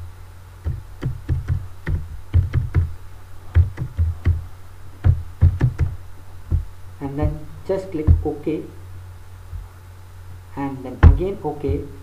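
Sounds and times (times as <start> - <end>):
keyboard typing: 0.6 - 6.6.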